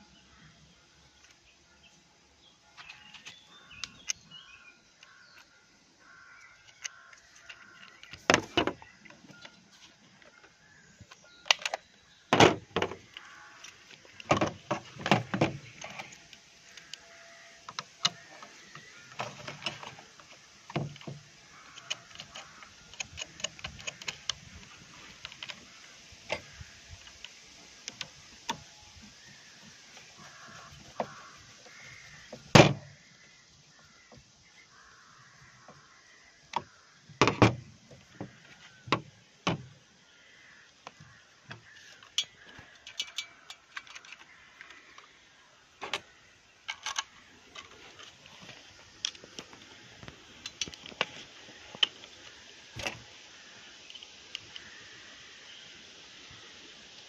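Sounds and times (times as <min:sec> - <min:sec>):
plastic and metal clicks: 0:17.7 - 0:25.6.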